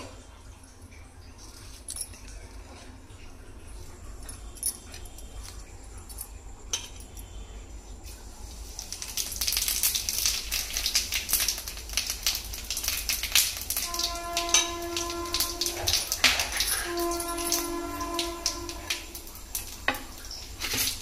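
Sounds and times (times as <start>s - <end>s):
fish sizzling in hot oil: 8.0s - 21.0s.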